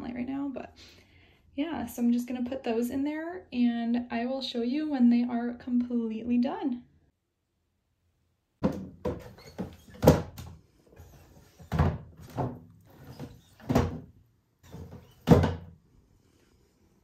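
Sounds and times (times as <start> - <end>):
hard plastic knocks and scrapes: 8.6 - 15.8.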